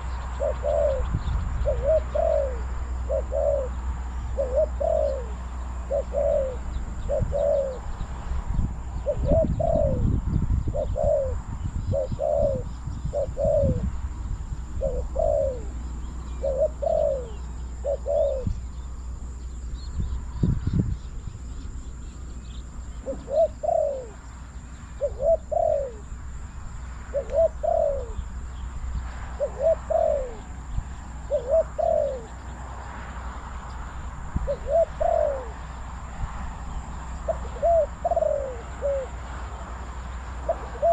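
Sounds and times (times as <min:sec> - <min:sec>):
dove cooing: 0:00.0 - 0:08.0, 0:09.0 - 0:14.0, 0:14.6 - 0:18.8, 0:22.5 - 0:26.2, 0:27.1 - 0:28.4, 0:29.3 - 0:32.5, 0:34.4 - 0:35.8, 0:37.2 - 0:39.6, 0:40.3 - 0:40.9.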